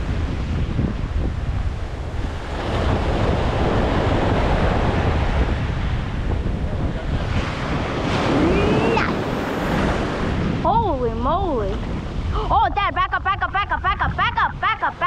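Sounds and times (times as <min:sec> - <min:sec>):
surf washing in: 0:00.0 - 0:15.0
wind buffeting microphone: 0:00.0 - 0:15.0.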